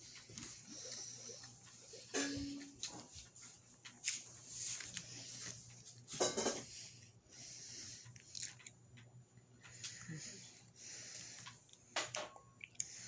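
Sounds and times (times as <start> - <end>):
apple crunching while chewing: 8.2 - 8.7.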